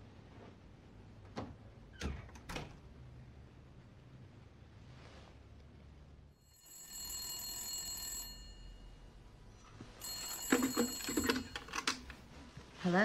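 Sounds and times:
telephone bell ringing: 0:06.4 - 0:09.2, 0:09.9 - 0:12.1.

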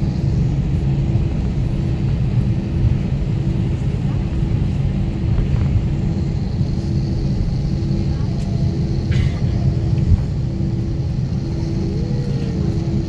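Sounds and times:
engines and wheels rumbling: 0:00.0 - 0:13.0
faint hum: 0:00.0 - 0:13.0.

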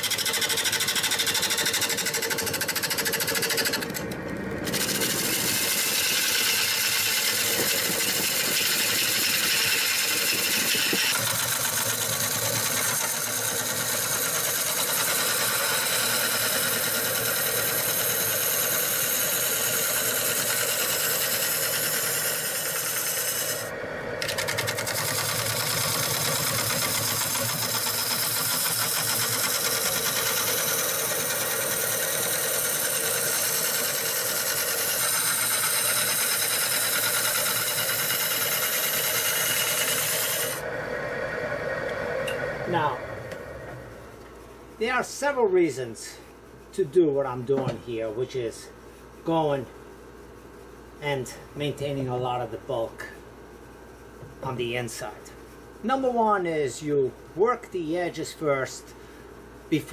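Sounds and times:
wood lathe tool cutting: 0:00.0 - 0:40.7.

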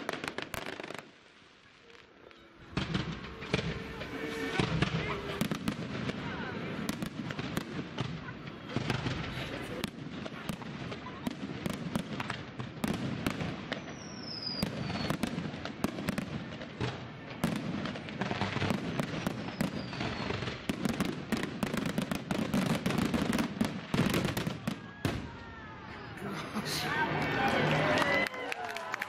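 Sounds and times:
fireworks bursting with bangs: 0:00.0 - 0:26.1
falling firework whistle: 0:01.6 - 0:07.6, 0:13.7 - 0:15.3, 0:18.6 - 0:20.6.

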